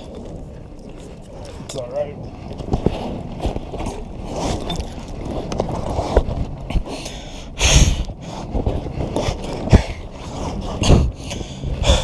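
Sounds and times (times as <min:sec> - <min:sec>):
clothing scraping on vinyl: 0:02.3 - 0:06.9, 0:08.3 - 0:11.2.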